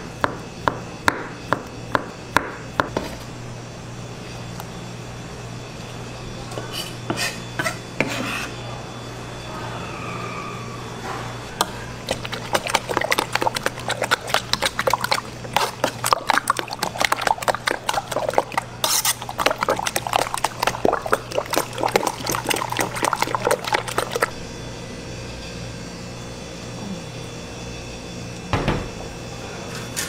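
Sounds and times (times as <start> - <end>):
egg mixture sloshing in a pan: 12.0 - 24.3.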